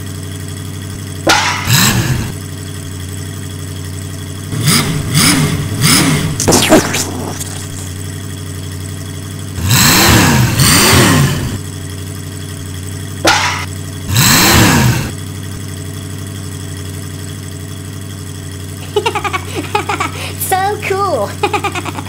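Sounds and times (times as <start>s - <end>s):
cartoon engine hum: 0.8s - 17.5s, 18.2s - 22.0s
sharp knock: 1.3s - 1.7s, 13.3s - 13.7s.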